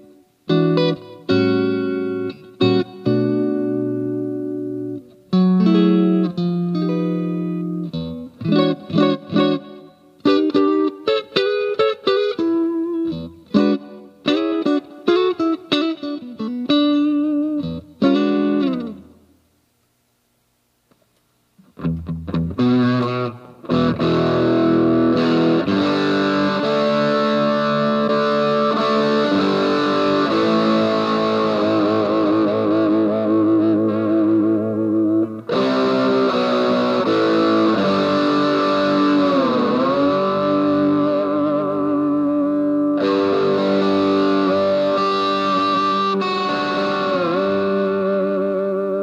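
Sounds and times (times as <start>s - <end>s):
electric guitar playing: 0.0s - 19.4s, 21.6s - 49.0s.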